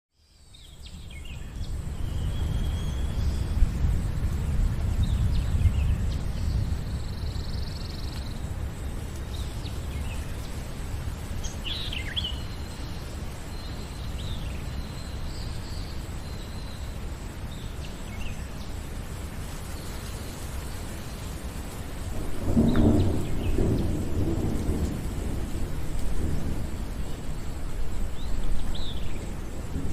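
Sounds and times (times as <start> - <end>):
rain falling on a lake: 0.1 - 29.9
birds chirping: 19.7 - 29.9.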